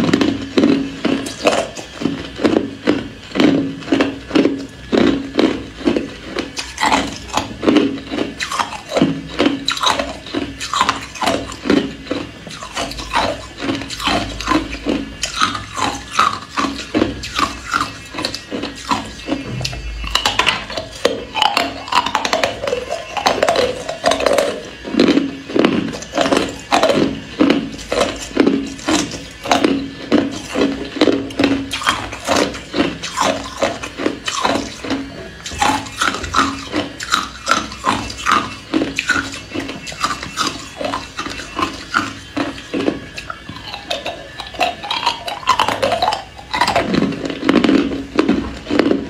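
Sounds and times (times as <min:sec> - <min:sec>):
ice cubes being crunched: 0:31.7 - 0:49.0.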